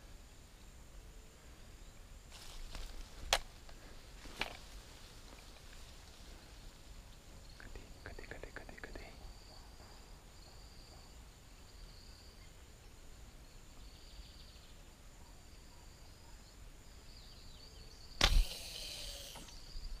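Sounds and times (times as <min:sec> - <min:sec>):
arrow hissing through air: 0:18.2 - 0:19.6.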